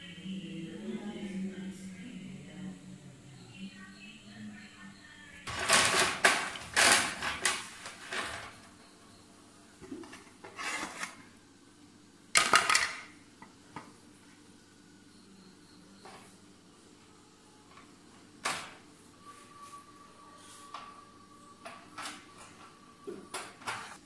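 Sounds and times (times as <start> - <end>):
pots and utensils clattering: 5.5 - 8.6, 12.4 - 13.1.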